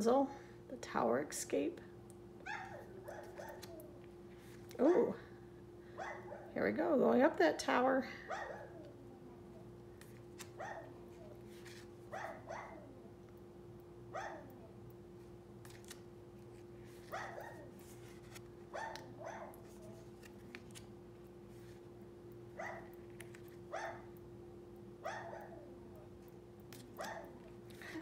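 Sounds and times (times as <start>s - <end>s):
dog barking: 2.4s - 3.7s, 6.0s - 6.6s, 8.3s - 8.8s, 10.6s - 10.9s, 12.1s - 12.9s, 14.1s - 14.6s, 17.1s - 17.7s, 18.7s - 19.6s, 22.6s - 23.0s, 23.7s - 24.1s, 25.0s - 25.6s, 27.0s - 27.4s
cards clicking when handled: 3.2s - 3.9s.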